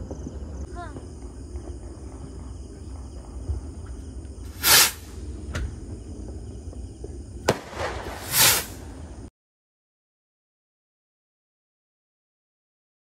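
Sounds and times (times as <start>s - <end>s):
fireworks bursting: 0.0s - 9.3s
firework crack: 2.7s - 6.4s, 7.1s - 9.3s.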